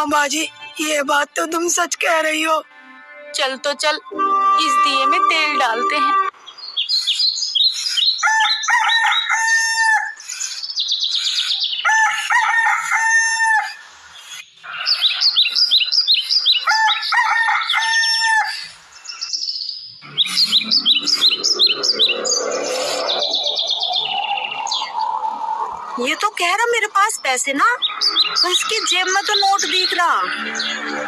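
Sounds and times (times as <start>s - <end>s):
birds chirping: 0.0s - 9.5s, 10.2s - 12.1s, 14.0s - 18.0s, 18.6s - 31.0s
rooster crowing: 8.2s - 10.2s, 11.9s - 13.8s, 16.7s - 18.6s.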